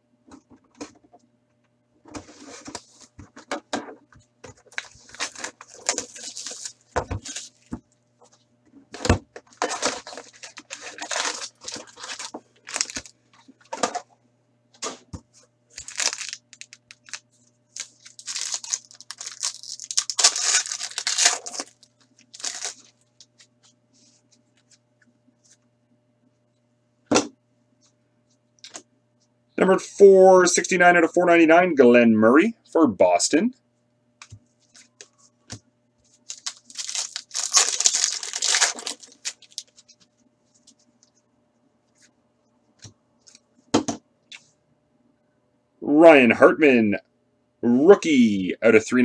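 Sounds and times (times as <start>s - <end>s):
faint hum: 0.0s - 49.0s
plastic wrappers crinkling and tearing: 4.6s - 7.7s, 9.5s - 13.2s, 15.7s - 23.0s, 36.1s - 40.0s.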